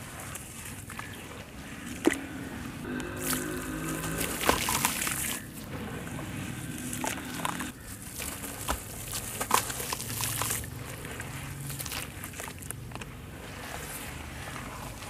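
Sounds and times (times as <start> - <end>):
hands crunching wet sand: 0.0 - 15.0
water splashing and sloshing: 0.0 - 15.0.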